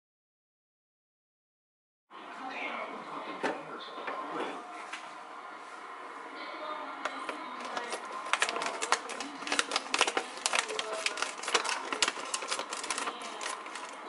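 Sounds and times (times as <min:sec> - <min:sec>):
plastic bag crinkling: 0:07.6 - 0:14.0.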